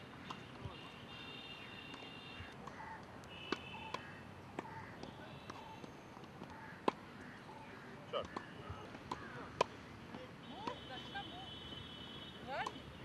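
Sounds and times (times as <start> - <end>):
birds chirping: 0.0 - 11.6
tennis balls struck by rackets: 0.1 - 1.0, 1.9 - 11.2.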